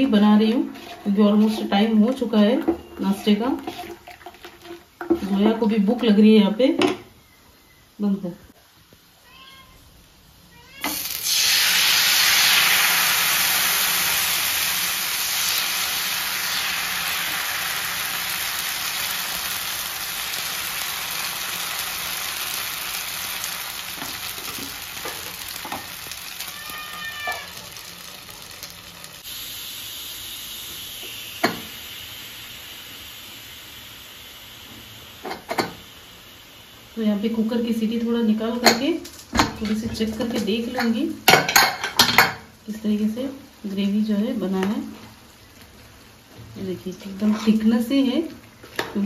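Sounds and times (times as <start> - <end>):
batter sizzling on hot pan: 10.8 - 39.2
steam hissing: 10.9 - 27.5, 29.1 - 37.0.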